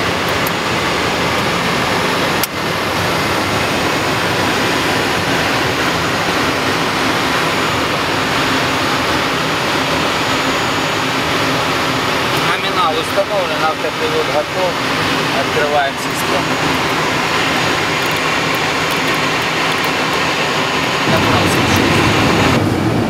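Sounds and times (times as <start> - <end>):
jet engines and rushing air: 0.0 - 23.0.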